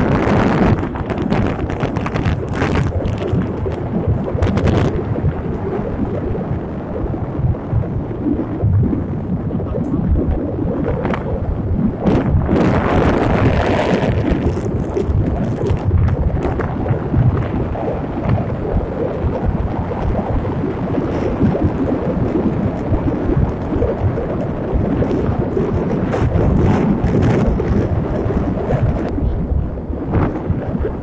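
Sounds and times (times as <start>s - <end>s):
road noise: 0.0s - 24.7s
wind rumble on microphone: 0.0s - 31.0s.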